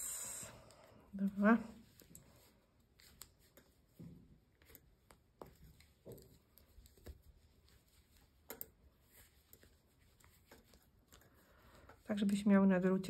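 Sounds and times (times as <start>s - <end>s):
wooden knitting needles clicking: 8.4s - 12.6s.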